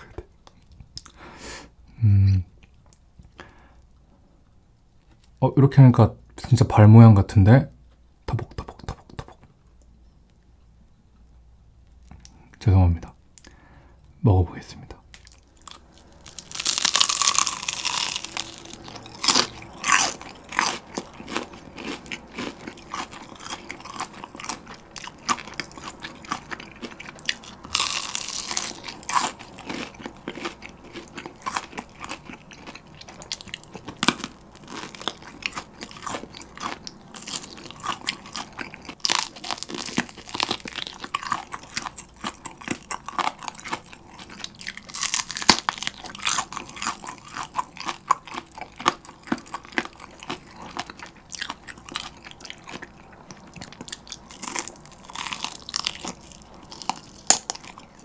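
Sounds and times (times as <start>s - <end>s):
crisp chewing: 15.1s - 58.0s
crunching bites of fried chicken: 15.2s - 58.0s.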